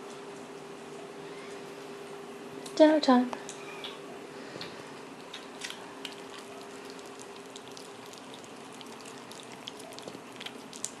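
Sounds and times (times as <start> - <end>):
kittens eating wet food: 4.6 - 11.0.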